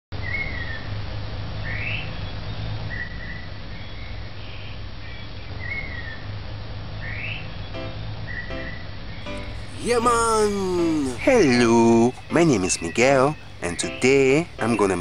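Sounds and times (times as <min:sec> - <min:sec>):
birds whistling calls: 0:09.3 - 0:15.0.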